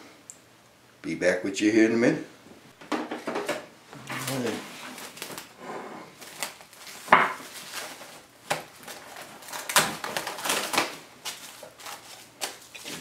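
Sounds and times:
cling wrap crinkling: 0:04.0 - 0:13.0.

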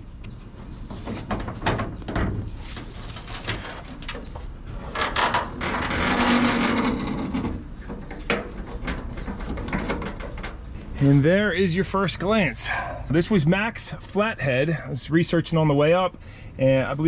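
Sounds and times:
metal hood scraping: 0:00.4 - 0:12.5
low creak: 0:03.2 - 0:07.9.

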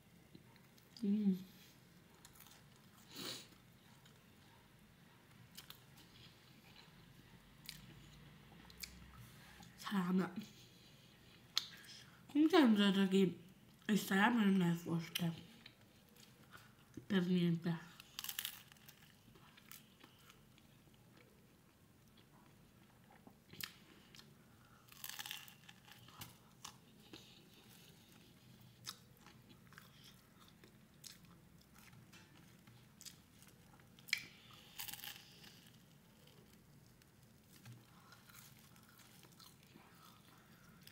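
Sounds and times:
chewing bread roll: 0:00.1 - 0:09.8, 0:17.9 - 0:40.9
crunching bites into crust: 0:24.9 - 0:27.2.

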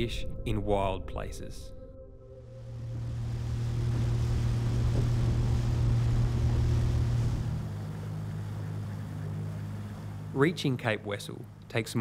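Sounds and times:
wind: 0:02.4 - 0:12.0
outboard motor running: 0:02.7 - 0:11.9
water hiss: 0:02.9 - 0:10.4.

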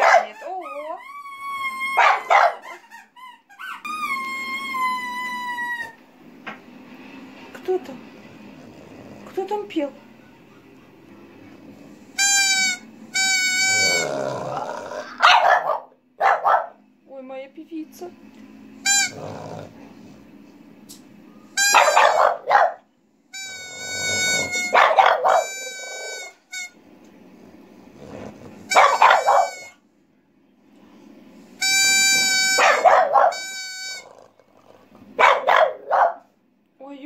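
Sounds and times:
dog barking: 0:00.0 - 0:00.6, 0:02.0 - 0:02.8, 0:15.1 - 0:16.8, 0:21.7 - 0:22.9, 0:24.7 - 0:25.6, 0:28.7 - 0:29.7, 0:32.6 - 0:33.4, 0:35.2 - 0:36.3
toy pipe high notes: 0:12.2 - 0:14.0, 0:23.4 - 0:26.8, 0:28.7 - 0:29.8, 0:31.6 - 0:34.1.

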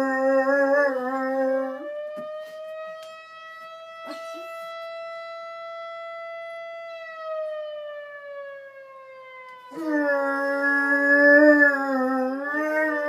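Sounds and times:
dog howling: 0:00.0 - 0:01.8, 0:09.7 - 0:13.0.

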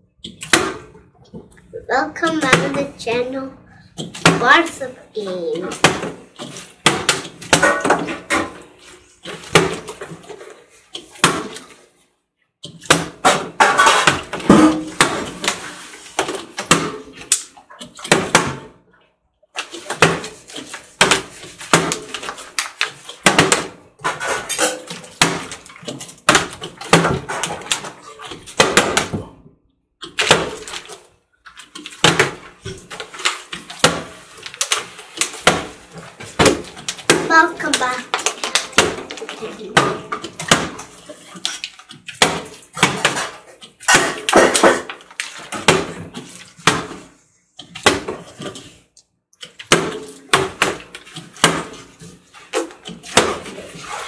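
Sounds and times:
plastic bottles landing on glass: 0:05.8 - 0:08.6, 0:12.7 - 0:17.4, 0:19.6 - 0:29.3, 0:31.7 - 0:47.1.

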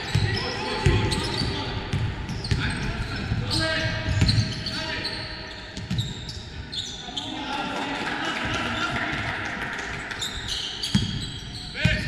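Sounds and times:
basketball bouncing on court: 0:00.0 - 0:04.7, 0:05.7 - 0:06.4, 0:10.2 - 0:12.0
sneaker squeaks on floor: 0:00.0 - 0:07.3, 0:10.2 - 0:12.0
players' voices echoing: 0:00.0 - 0:12.0.

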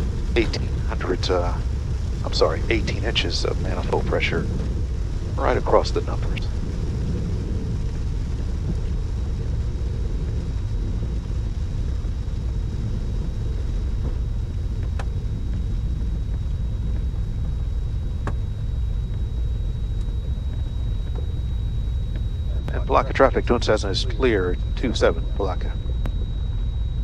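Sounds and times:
aircraft engines low rumble: 0:00.0 - 0:27.0
faint clicks: 0:12.3 - 0:27.0
thin high tone: 0:16.0 - 0:27.0.

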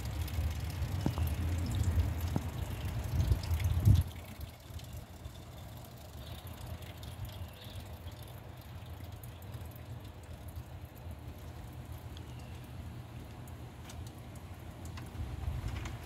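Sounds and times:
faint ticks: 0:09.0 - 0:16.0.

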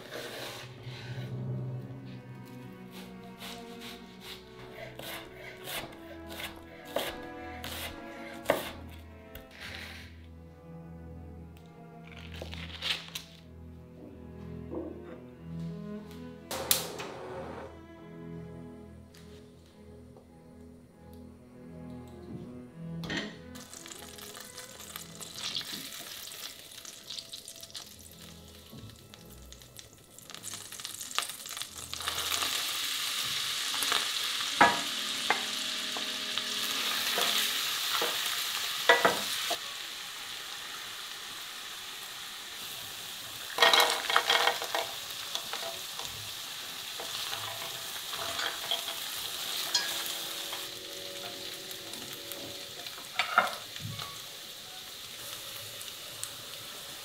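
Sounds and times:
wooden spatula scraping a pot: 0:00.0 - 0:10.2, 0:47.0 - 0:51.4
butter and onion sizzling: 0:23.5 - 0:57.0.

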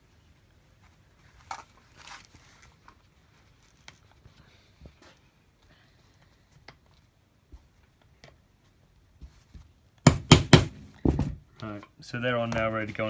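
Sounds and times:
canvas belt rustling: 0:00.6 - 0:04.2.

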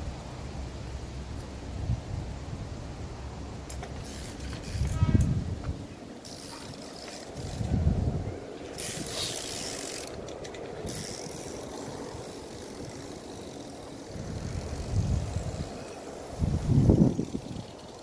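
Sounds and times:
bicycle freewheel clicking: 0:03.7 - 0:05.1, 0:06.2 - 0:08.0, 0:08.7 - 0:18.0.

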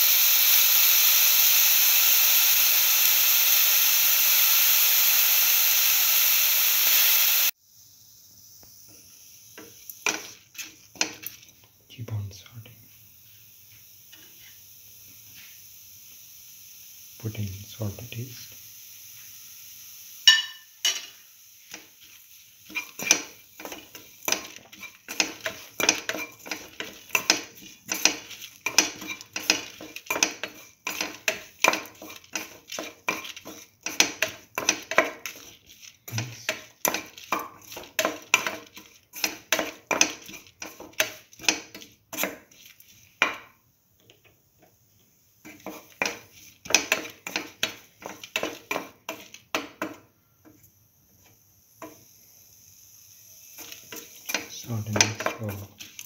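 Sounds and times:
metal utensil scraping a pan: 0:09.6 - 0:11.5, 0:21.7 - 0:43.4, 0:45.4 - 0:50.0, 0:53.6 - 0:56.0.

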